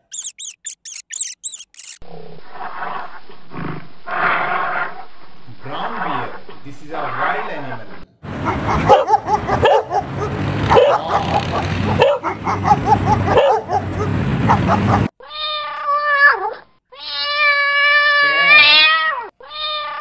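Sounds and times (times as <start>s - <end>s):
dog barking and yipping: 0.0s - 2.0s, 8.3s - 15.1s
cat meowing: 15.2s - 20.0s.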